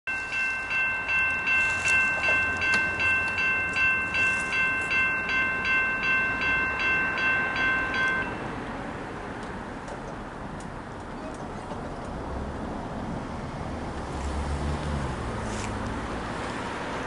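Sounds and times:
railroad crossing bell ringing: 0.1 - 9.0.

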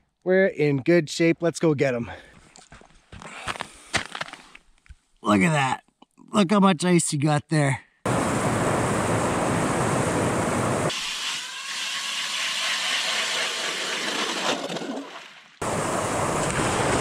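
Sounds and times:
ice auger boring into ice: 11.7 - 15.2.

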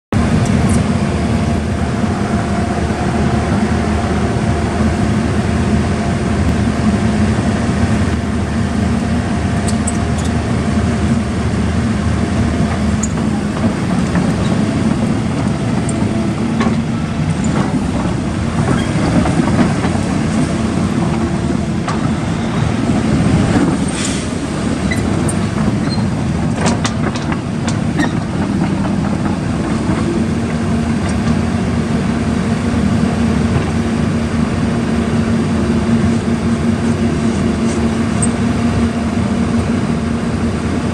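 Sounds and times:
excavator diesel engine: 0.1 - 40.9
sharp clicks and squeaks: 9.6 - 10.4, 13.0 - 14.7, 15.4 - 17.8, 24.8 - 29.2, 37.6 - 38.4.

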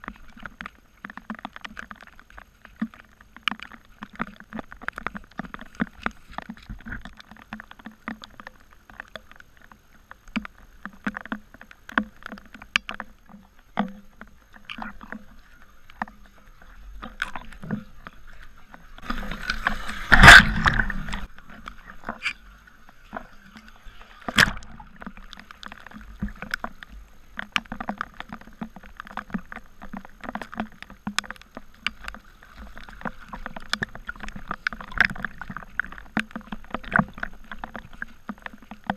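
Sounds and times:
small splashes and ticks: 0.0 - 38.9
water sloshing and lapping: 0.0 - 38.9
loud splash: 19.5 - 21.2.

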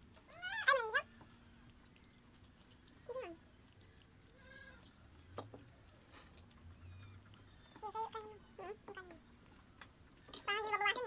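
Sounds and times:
cat meowing: 4.3 - 4.9.

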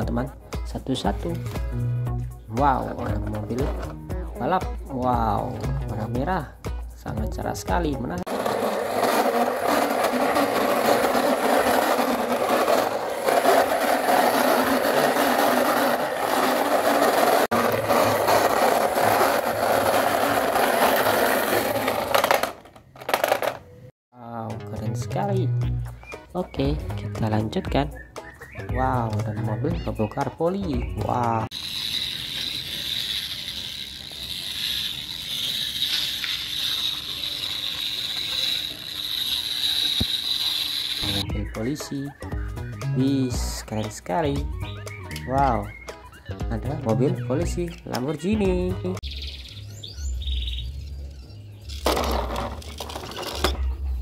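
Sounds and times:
toy car wheels whirring rattle: 8.2 - 23.7, 31.4 - 41.2, 51.7 - 53.8.

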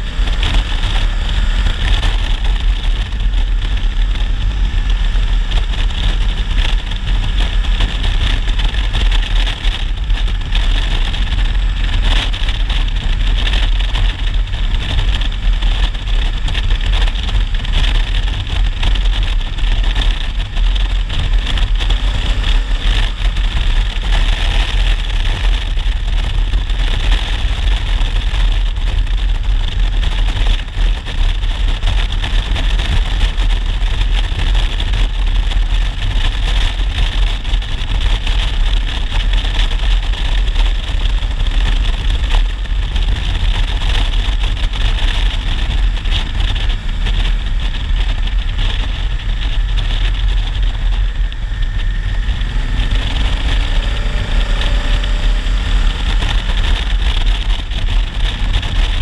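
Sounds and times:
motorcycle engine running: 0.0 - 59.0
wind rush on microphone: 0.0 - 59.0.

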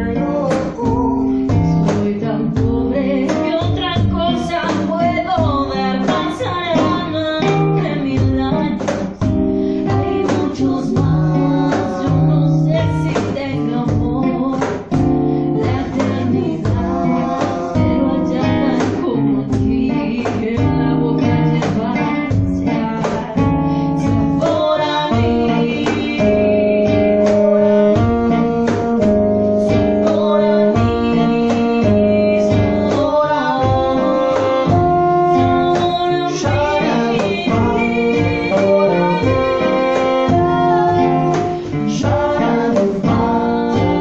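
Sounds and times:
acoustic guitar: 0.0 - 44.0
cajon drumming: 0.0 - 44.0
woman singing: 0.0 - 44.0
men singing in harmony: 16.0 - 19.0, 36.2 - 40.4, 41.2 - 44.0.

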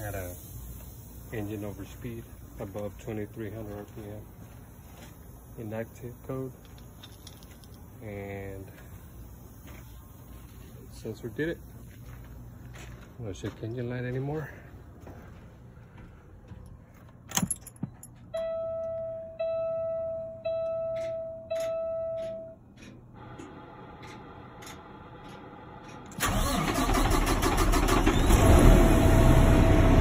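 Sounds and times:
dashboard warning beeps: 18.3 - 22.9
diesel engine cranking and running: 22.7 - 30.0.

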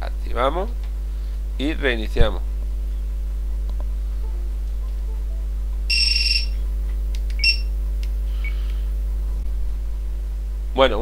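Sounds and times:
piezo beeper beeps: 5.9 - 6.6, 7.4 - 7.7.

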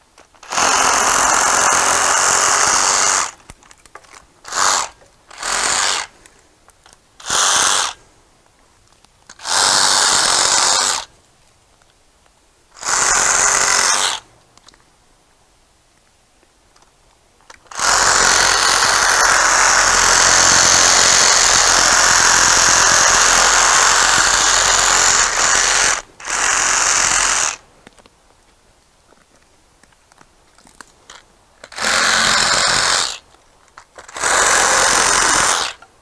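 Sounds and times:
reciprocating saw cutting branches: 0.3 - 3.4, 4.4 - 6.2, 7.2 - 8.0, 9.3 - 11.1, 12.8 - 14.3, 17.5 - 27.6, 31.6 - 33.2, 33.9 - 35.8.

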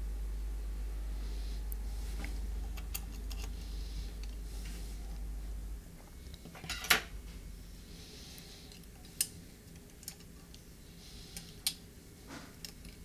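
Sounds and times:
low steady hum: 0.0 - 13.0
small parts and tools clicking: 2.8 - 3.6, 8.7 - 10.6, 12.6 - 13.0.

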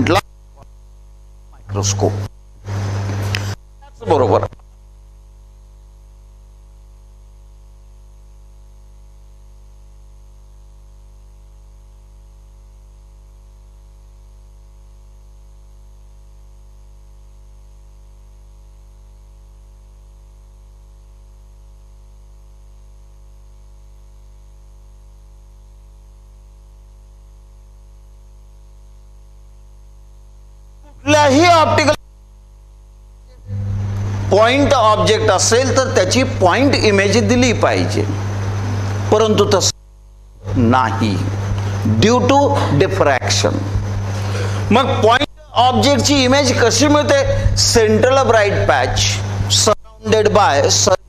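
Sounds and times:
electrical hum: 0.0 - 51.0.

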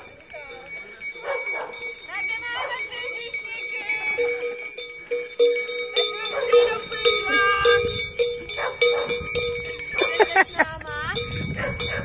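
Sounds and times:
costume bells ringing: 0.0 - 12.0.

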